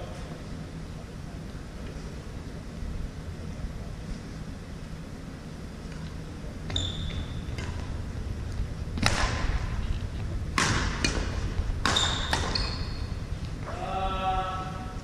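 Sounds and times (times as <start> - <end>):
sneakers squeaking on hardwood: 6.6 - 8.0, 10.6 - 13.8
racquets smacking shuttlecock: 7.4 - 8.0, 9.0 - 13.8.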